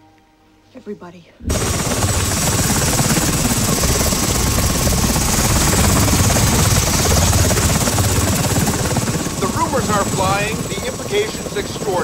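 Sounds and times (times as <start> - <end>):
helicopter rotors chopping: 1.4 - 12.0.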